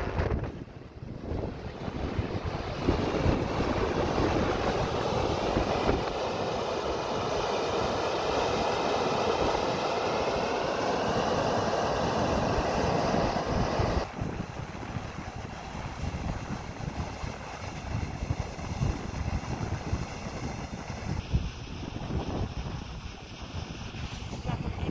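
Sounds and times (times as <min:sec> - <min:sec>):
wind buffeting microphone: 0:00.0 - 0:24.9
steam rushing hiss: 0:02.8 - 0:14.1.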